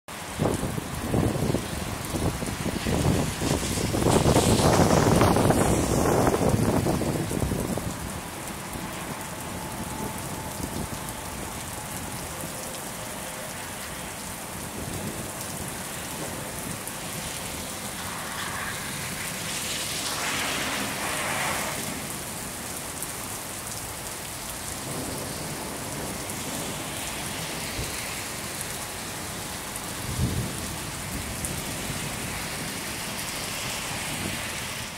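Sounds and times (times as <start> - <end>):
rain on wet pavement: 0.1 - 34.9
low rumble of thunder: 24.8 - 27.9, 30.0 - 32.2.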